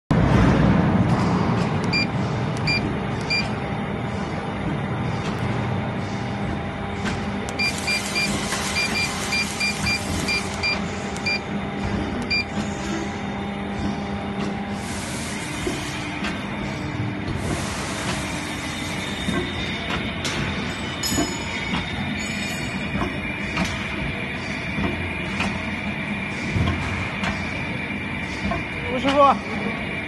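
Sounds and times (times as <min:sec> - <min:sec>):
steady machinery hum: 0:00.1 - 0:30.0
keypad beeping: 0:01.9 - 0:03.5, 0:07.5 - 0:11.4, 0:12.2 - 0:12.5.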